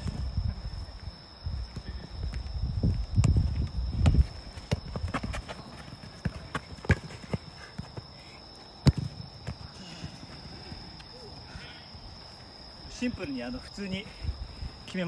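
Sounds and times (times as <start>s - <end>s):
ball thump: 8.8s - 9.6s.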